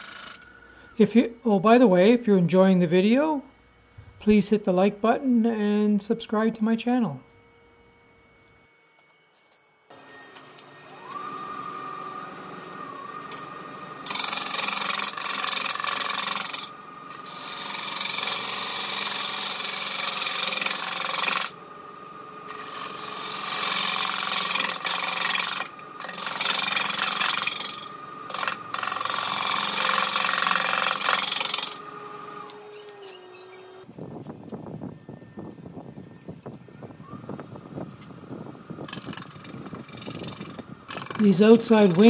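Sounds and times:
lathe motor whine: 0:00.0 - 0:42.0
gouge cutting wood hiss: 0:38.9 - 0:42.0.

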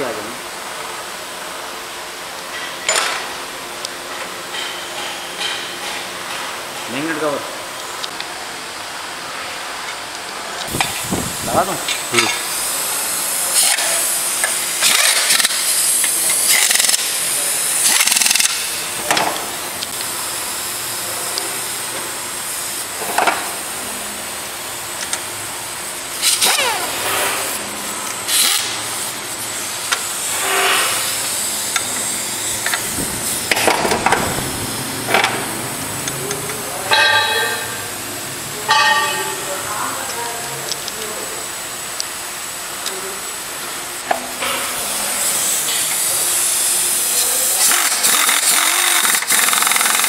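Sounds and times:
bursts of hissing and clatter: 0:10.7 - 0:20.4, 0:25.9 - 0:36.1, 0:44.4 - 0:50.0
steady hiss: 0:44.7 - 0:47.8.

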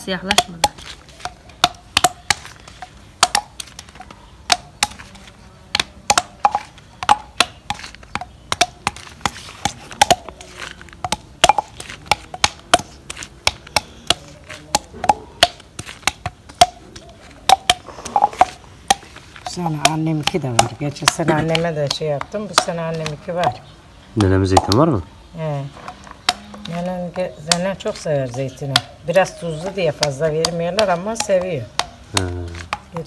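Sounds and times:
glass knocking on concrete: 0:11.0 - 0:16.9, 0:17.5 - 0:23.7.

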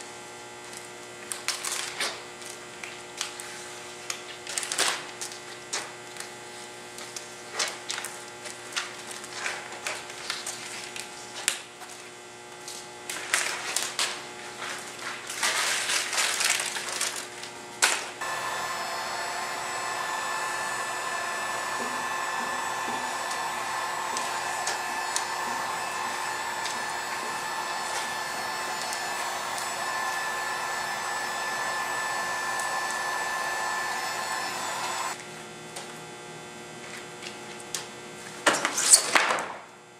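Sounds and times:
vinyl film rustling and crackling: 0:14.6 - 0:18.0
heat gun blowing: 0:18.2 - 0:35.2.

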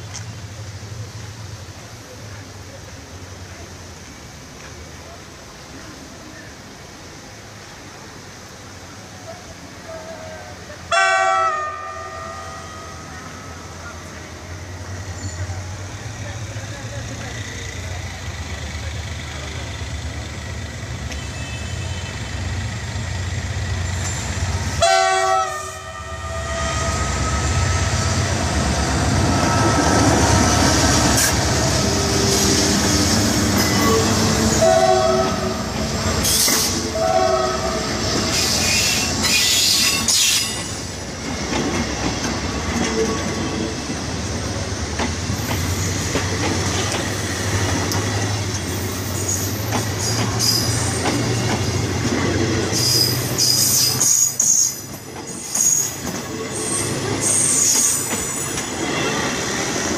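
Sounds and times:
train passing with low rumble: 0:00.0 - 0:59.9
train horn: 0:10.9 - 0:13.2, 0:24.8 - 0:27.9, 0:33.6 - 0:38.8
wheels clicking over rail joints: 0:38.1 - 0:56.4.

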